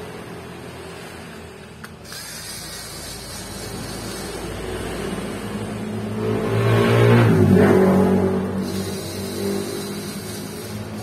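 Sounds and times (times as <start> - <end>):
electric screwdriver whirring: 1.7 - 4.6, 8.6 - 11.0.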